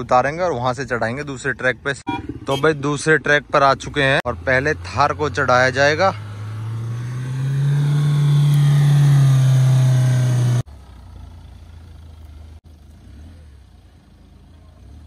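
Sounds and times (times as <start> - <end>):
engine revving hard: 4.3 - 10.7.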